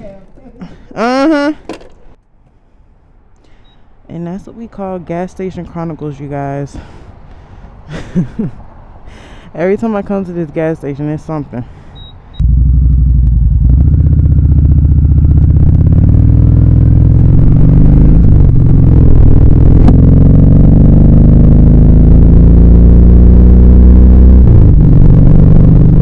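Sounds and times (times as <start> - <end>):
motorcycle engine accelerating: 12.4 - 26.0.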